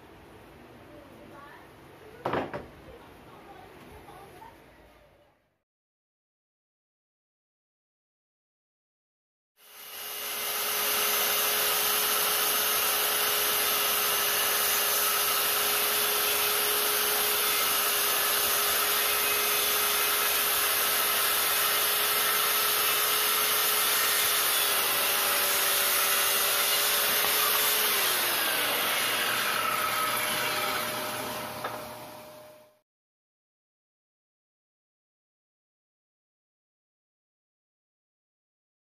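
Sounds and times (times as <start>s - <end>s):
circular saw cutting wood: 9.6s - 32.8s.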